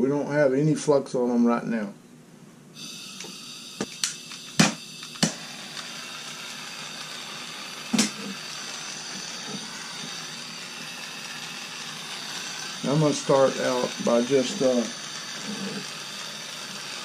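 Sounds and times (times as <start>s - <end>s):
gas torch hissing: 2.8s - 17.0s
torch flame burning: 2.8s - 17.0s
sharp igniter clicks: 3.2s - 7.3s, 7.9s - 8.4s.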